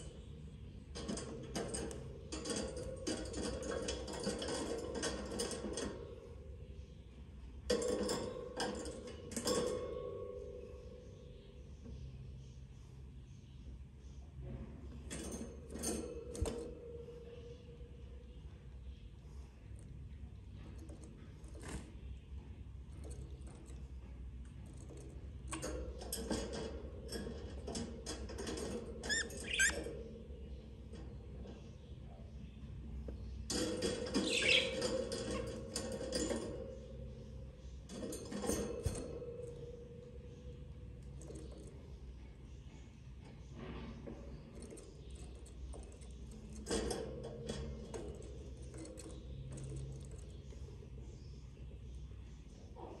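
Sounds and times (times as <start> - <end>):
faint clicks and rustles: 10.7 - 53.0
budgies chirping: 29.0 - 29.8, 34.0 - 35.6.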